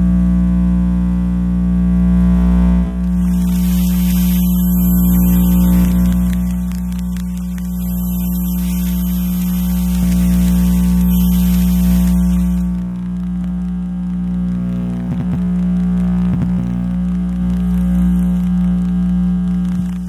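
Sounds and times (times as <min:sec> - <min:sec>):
electrical buzzing hum: 0:00.0 - 0:20.0
high hiss: 0:03.2 - 0:12.6.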